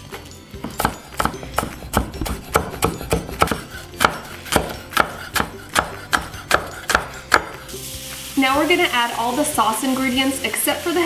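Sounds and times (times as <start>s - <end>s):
knife chopping on wooden board: 0.6s - 7.7s.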